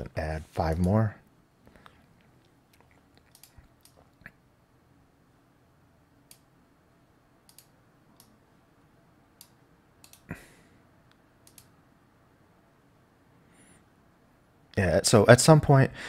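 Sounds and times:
computer mouse clicking: 2.7 - 4.2, 6.2 - 6.5, 7.5 - 8.4, 9.4 - 10.3, 11.4 - 11.7.

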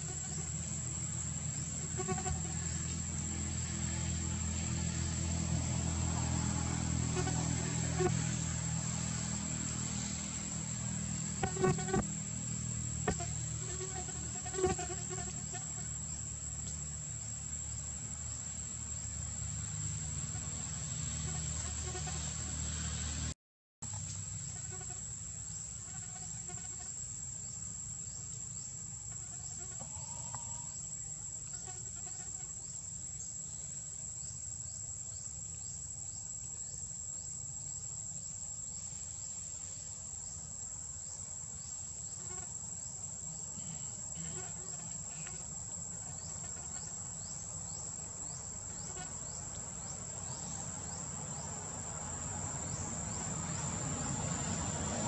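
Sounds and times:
high-pitched insect drone: 0.0 - 22.7, 40.2 - 55.0.

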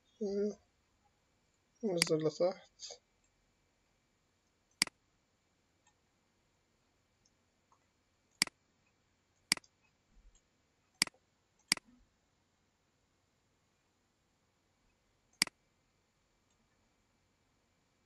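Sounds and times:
computer mouse clicking: 9.4 - 12.0, 15.3 - 15.6.

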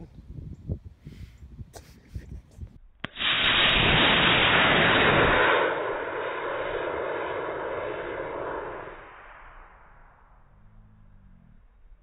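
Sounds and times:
rocket motor rushing hiss: 3.1 - 9.2.

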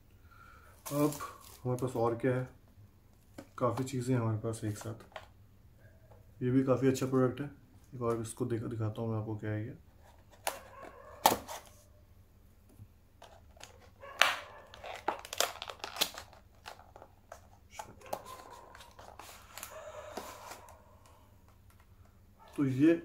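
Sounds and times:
packaging crinkling and tearing: 0.8 - 2.1, 13.2 - 21.2.

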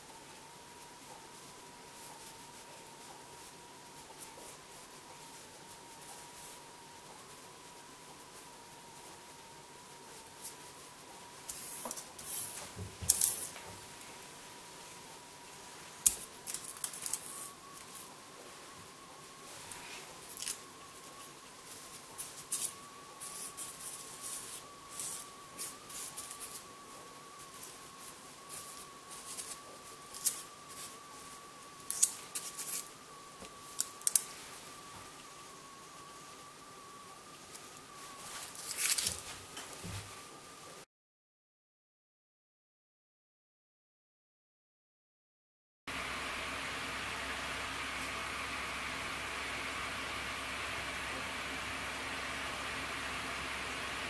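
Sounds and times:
faint steady high tone: 0.0 - 40.8
paper crinkles and taps: 38.4 - 40.1.

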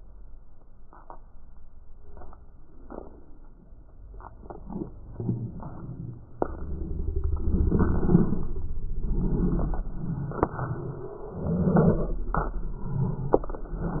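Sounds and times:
slowed deep whooshes: 4.7 - 14.0.

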